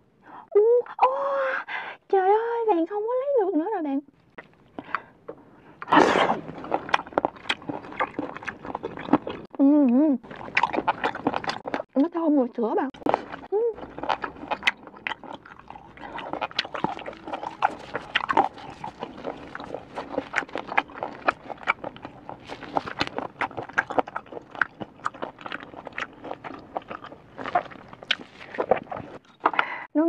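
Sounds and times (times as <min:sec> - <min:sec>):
close chewing with wet smacks: 0:05.8 - 0:09.5, 0:10.2 - 0:12.0, 0:12.9 - 0:29.5.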